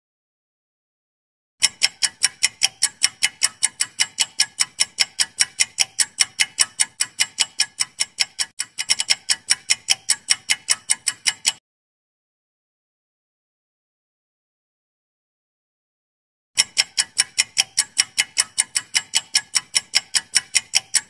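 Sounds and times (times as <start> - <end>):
clock ticking: 1.6 - 11.6, 16.6 - 21.0.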